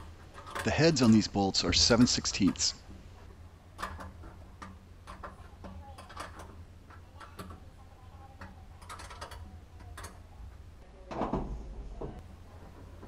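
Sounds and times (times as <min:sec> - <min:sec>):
metallic clatter: 0:00.0 - 0:07.6.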